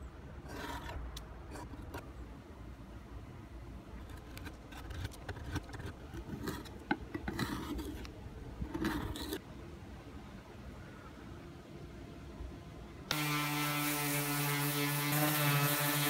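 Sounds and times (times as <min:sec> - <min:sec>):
putty knife scraping paint: 0:00.4 - 0:02.1, 0:04.0 - 0:09.4
small clicks and scratches: 0:04.0 - 0:09.4.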